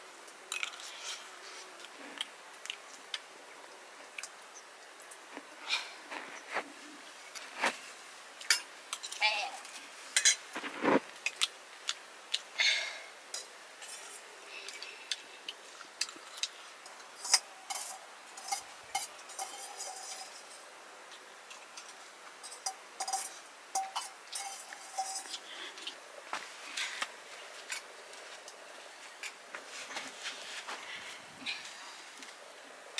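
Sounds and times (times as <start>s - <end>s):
spoon clinking against steel bowl: 17.2s - 20.6s, 22.4s - 25.4s.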